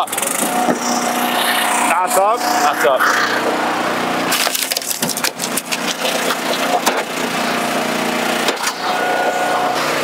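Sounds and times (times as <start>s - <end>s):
log splitter engine running: 0.0s - 10.0s
wood cracking and splintering: 4.3s - 7.1s.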